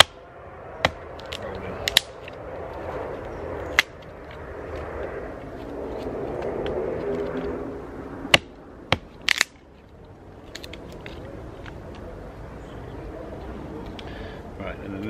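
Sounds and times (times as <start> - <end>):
hatchet striking wood: 0.0 - 0.2, 0.8 - 2.2, 8.3 - 9.5.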